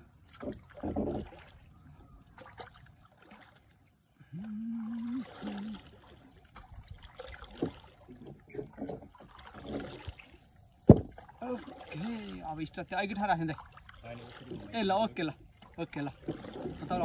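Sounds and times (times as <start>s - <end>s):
paddle splashing in water: 0.0s - 17.0s
water dribbling: 0.0s - 17.0s
knocks on canoe: 0.3s - 1.3s, 7.5s - 10.0s, 10.8s - 11.3s.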